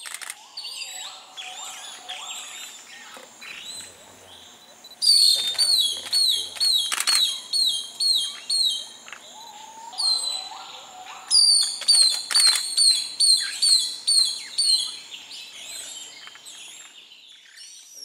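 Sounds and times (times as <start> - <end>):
bird whistling high downslurred calls: 5.0 - 15.0.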